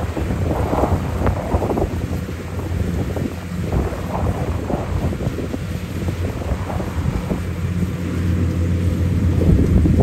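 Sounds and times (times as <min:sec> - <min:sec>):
harvester engine humming: 0:00.0 - 0:10.0
wind rumbling on microphone: 0:00.0 - 0:10.0.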